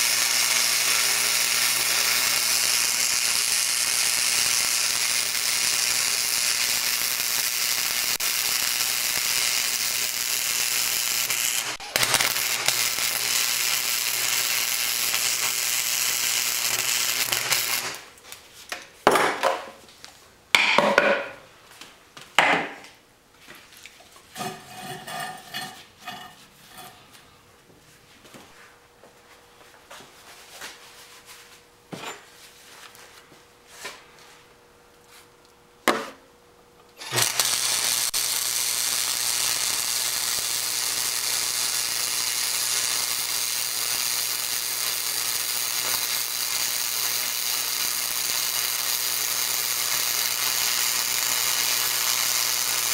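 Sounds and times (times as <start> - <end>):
welder arc hissing: 0.0 - 18.2, 37.0 - 52.9.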